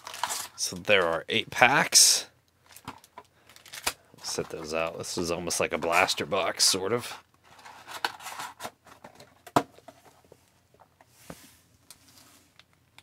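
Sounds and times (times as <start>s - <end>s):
card packs rustling: 0.0s - 1.8s, 2.6s - 10.3s.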